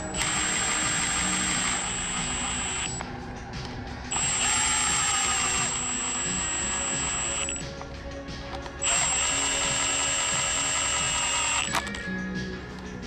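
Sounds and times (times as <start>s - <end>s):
impact driver motor whine: 0.0s - 3.0s, 4.1s - 7.6s, 8.8s - 11.9s.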